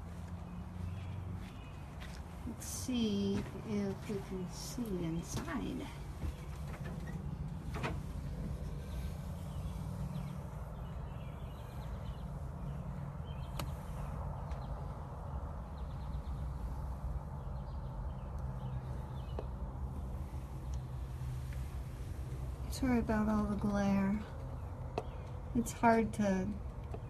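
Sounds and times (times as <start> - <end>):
low steady rumble: 0.0 - 27.0
faint clicks and taps: 24.4 - 25.4.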